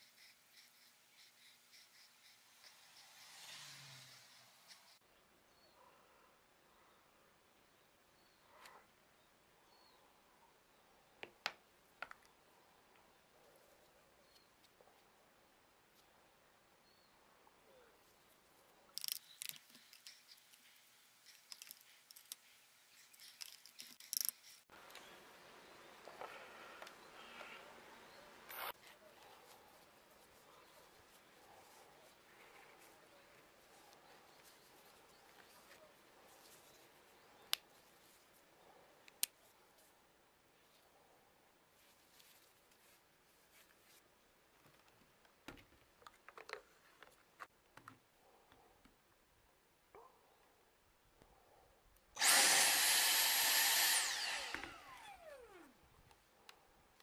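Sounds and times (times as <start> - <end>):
rubber gloves rustling: 18.0 - 24.8, 41.6 - 45.2
plastic parts clicking: 19.0 - 20.6, 21.3 - 22.4, 23.1 - 24.6.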